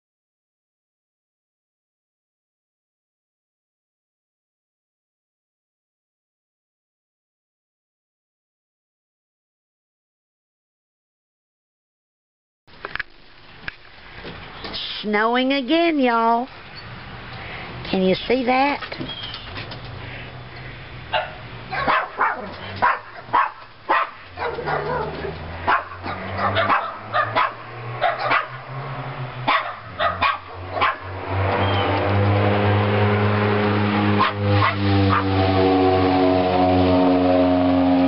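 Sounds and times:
dog barking: 21.1s - 28.6s, 29.5s - 31.1s, 34.2s - 35.3s.

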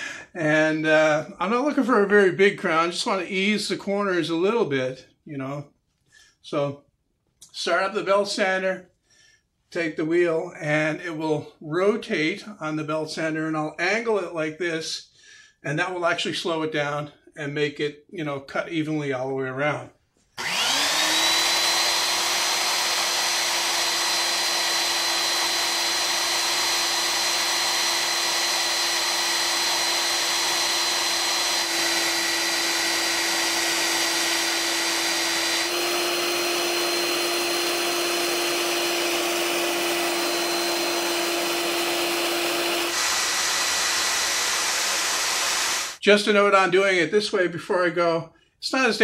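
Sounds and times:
belt sander whining: 20.4s - 46.0s.

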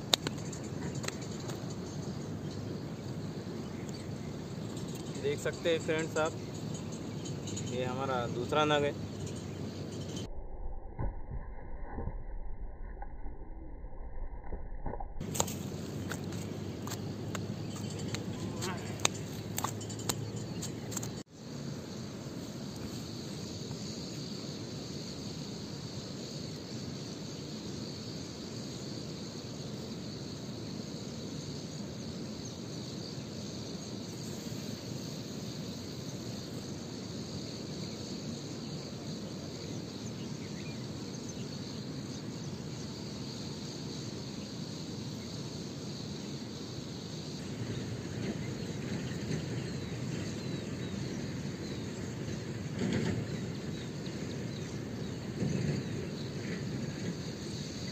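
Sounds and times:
insects chirring: 0.0s - 57.9s
low outdoor background noise: 15.2s - 57.9s.

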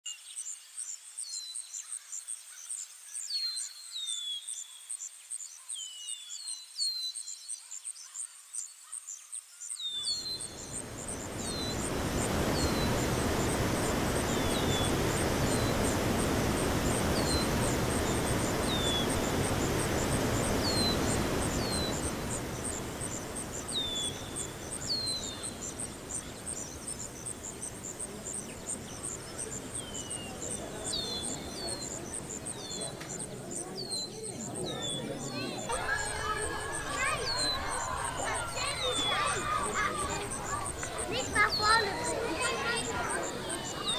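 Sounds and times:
small birds chirping: 0.1s - 43.9s
crickets trilling: 9.8s - 43.9s
rushing fountain water: 10.0s - 43.9s.

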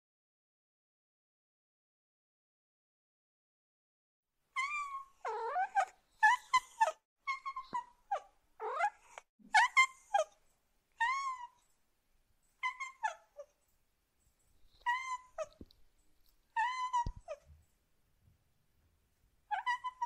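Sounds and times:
cat meowing: 14.8s - 15.6s, 16.6s - 17.5s, 19.5s - 20.0s.

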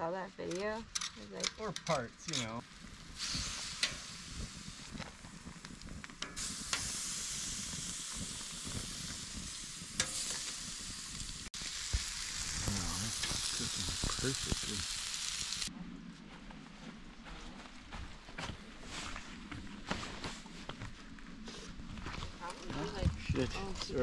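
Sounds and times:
chicken sizzling on a grill: 1.9s - 15.7s.

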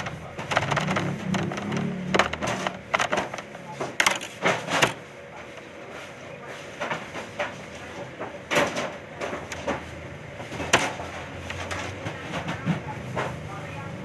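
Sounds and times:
knocks and clicks on steel table: 0.0s - 5.0s.

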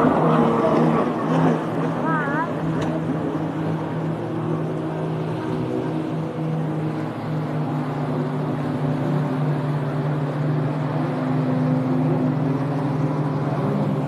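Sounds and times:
jet ski engine passing: 0.0s - 14.0s.

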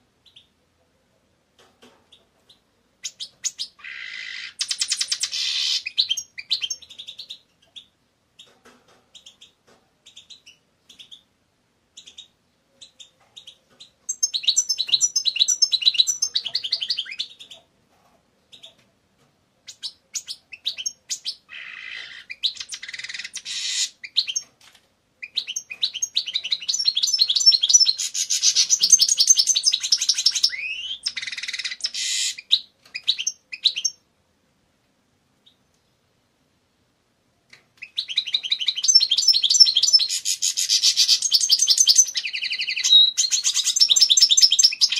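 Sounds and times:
finch twittering song: 2.1s - 8.5s, 12.0s - 17.6s, 25.2s - 34.0s, 37.8s - 44.9s.

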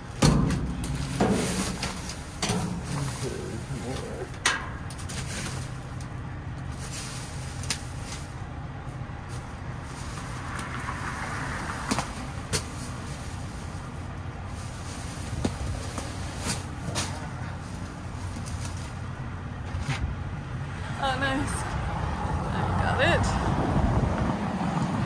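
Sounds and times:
plastic bags rustling: 0.0s - 19.2s
low engine hum: 0.0s - 25.0s.

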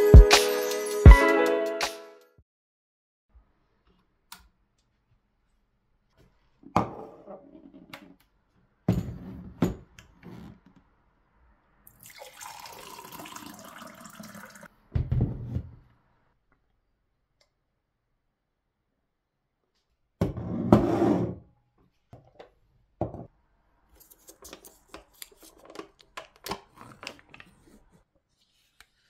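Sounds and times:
water pouring into glass: 11.9s - 14.7s
jug and glass knocking on countertop: 23.0s - 23.3s.

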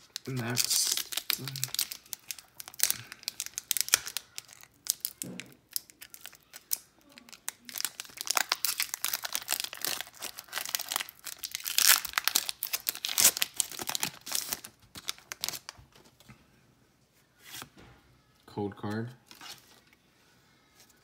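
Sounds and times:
foil wrapper tearing and crinkling: 0.0s - 15.8s.

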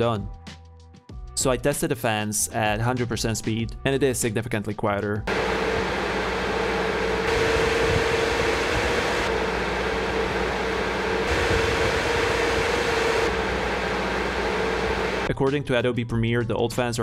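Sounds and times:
cooling fans whooshing: 5.3s - 15.3s.

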